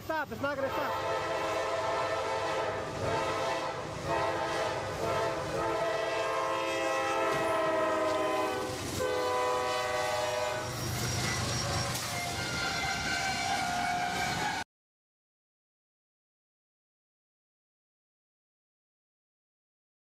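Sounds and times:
train running rumble: 0.0s - 14.6s
locomotive air horn blasts: 0.7s - 14.6s.

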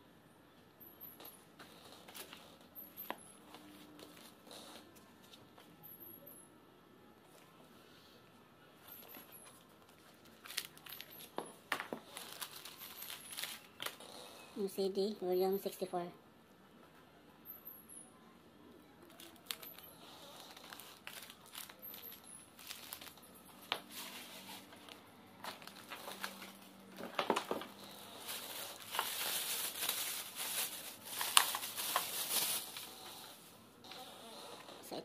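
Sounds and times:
plastic packaging crinkling: 9.9s - 11.4s, 12.0s - 14.0s, 19.1s - 33.2s.

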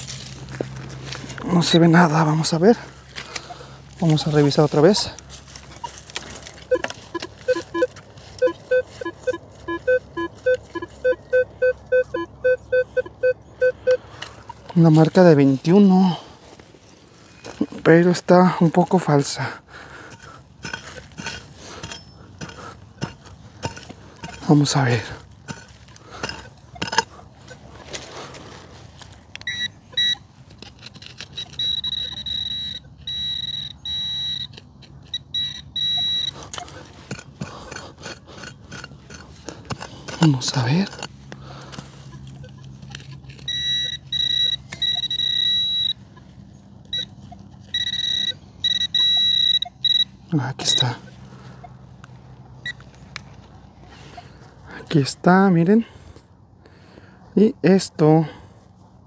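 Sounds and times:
metal detector short beeps: 6.7s - 14.7s, 29.4s - 30.3s, 31.3s - 36.8s, 42.4s - 51.8s, 52.6s - 52.8s.

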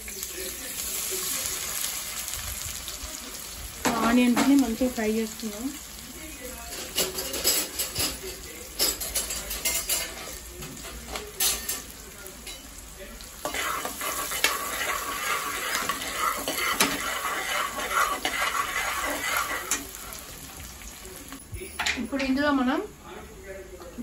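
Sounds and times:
onions sizzling in oil: 0.0s - 23.0s
metal spoon scraping a pot: 13.4s - 20.2s.

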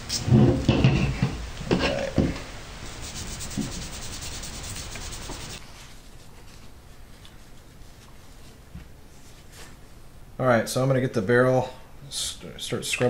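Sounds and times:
scrubbing and rubbing on metal: 2.9s - 5.6s.

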